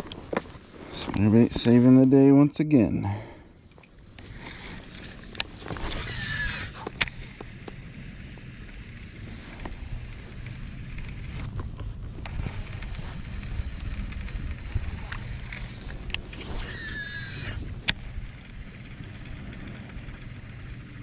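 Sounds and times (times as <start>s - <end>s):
wind rumbling on microphone: 4.0s - 21.0s.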